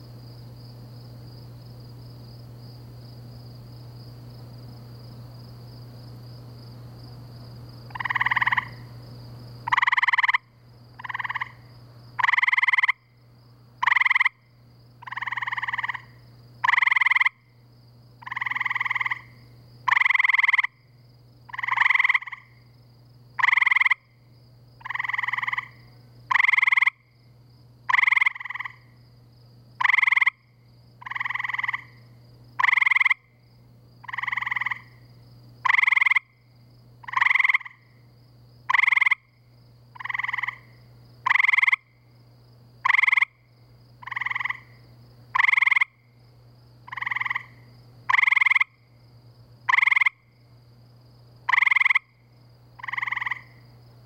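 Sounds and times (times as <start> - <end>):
faint low hum: 0.0 - 54.0
treefrog musical trills: 7.9 - 8.9, 9.6 - 13.2, 13.8 - 17.5, 18.2 - 20.8, 21.5 - 22.7, 23.4 - 24.2, 24.8 - 27.2, 27.9 - 29.0, 29.8 - 33.4, 34.0 - 35.0, 35.6 - 38.0, 38.7 - 42.0, 42.8 - 46.2, 46.8 - 49.0, 49.6 - 50.3, 51.4 - 53.6.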